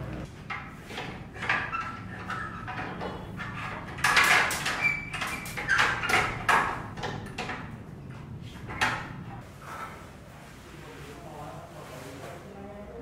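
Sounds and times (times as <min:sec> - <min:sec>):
metal pipe scraping and knocking: 0:00.2 - 0:07.7.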